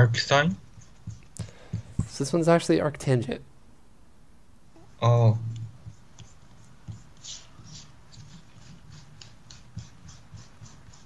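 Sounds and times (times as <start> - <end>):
stylus tapping on tablet: 0.7 - 2.2, 5.6 - 11.0.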